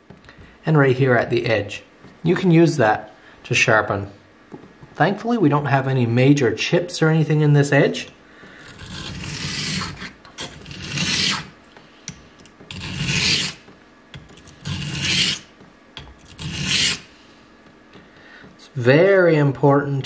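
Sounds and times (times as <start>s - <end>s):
razor scraping on whetstone: 8.6s - 11.5s, 12.7s - 13.6s, 14.4s - 15.5s, 16.2s - 17.1s.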